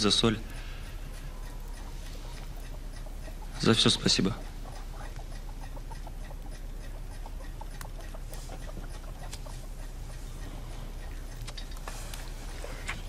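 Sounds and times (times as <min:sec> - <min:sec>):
chickens clucking: 0:00.0 - 0:13.0
low steady hum: 0:00.0 - 0:13.0.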